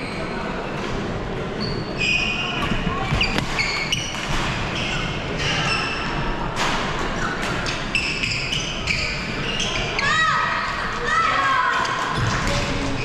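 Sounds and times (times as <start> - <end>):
din of busy sports hall: 0.0 - 13.0
shoes squeaking on court floor: 1.6 - 6.2, 7.2 - 10.1.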